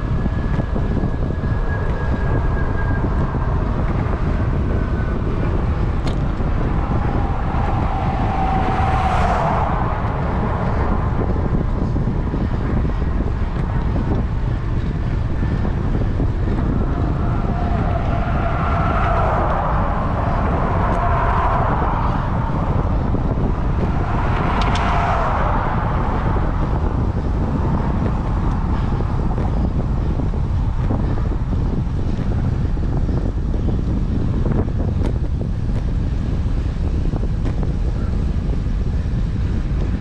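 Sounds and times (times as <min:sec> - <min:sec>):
vehicles passing: 0:00.0 - 0:40.0
wind buffeting microphone: 0:00.0 - 0:40.0.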